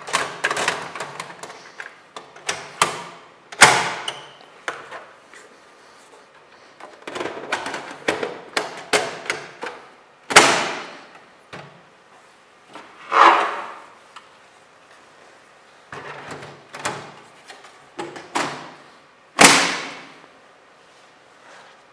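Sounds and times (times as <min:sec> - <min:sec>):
plastic and metal clatter: 0:00.0 - 0:02.7, 0:06.8 - 0:09.9.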